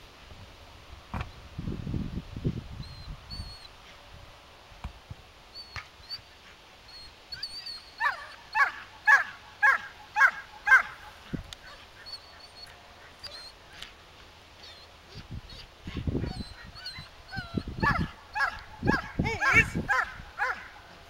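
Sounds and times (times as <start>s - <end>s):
faint bird chirps: 2.8s - 3.7s
dog yelping: 6.9s - 13.6s, 14.6s - 20.9s.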